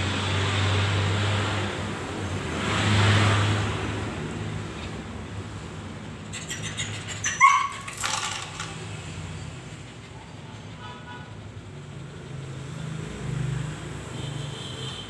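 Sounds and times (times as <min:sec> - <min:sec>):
dog yipping: 0:06.2 - 0:08.5.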